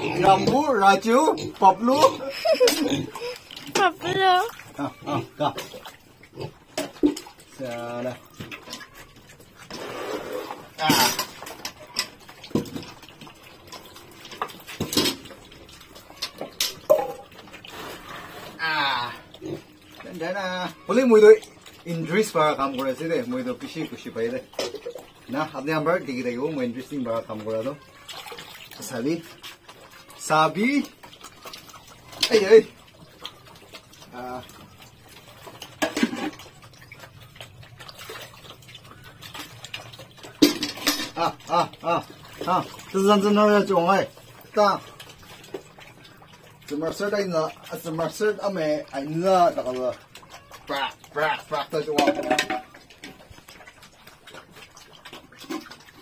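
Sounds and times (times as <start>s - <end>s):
pigs grunting: 0.0s - 16.6s, 17.3s - 56.0s
water sloshing in metal bucket: 0.0s - 56.0s
tin can knocking metal bucket: 16.8s - 17.3s, 51.8s - 52.8s
water splash: 49.0s - 53.4s.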